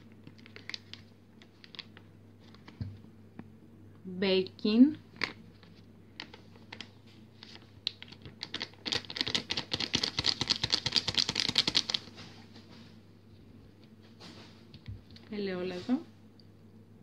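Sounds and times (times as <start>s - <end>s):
paper sachet crinkling: 0.0s - 2.8s, 5.1s - 12.2s
sachet crackling rattle when shaken: 0.1s - 2.7s, 5.1s - 12.3s.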